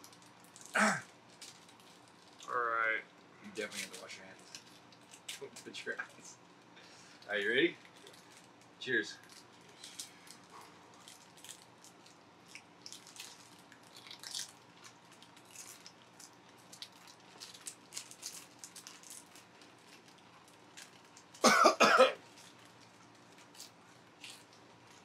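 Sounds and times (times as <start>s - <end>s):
man coughing: 0.8s - 1.0s, 21.4s - 22.2s
tortilla chip crunching: 9.4s - 21.4s, 22.2s - 25.0s.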